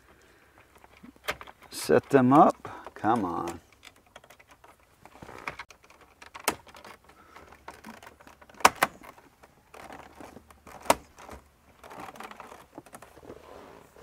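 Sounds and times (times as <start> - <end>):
plastic rubbing: 3.0 - 14.0.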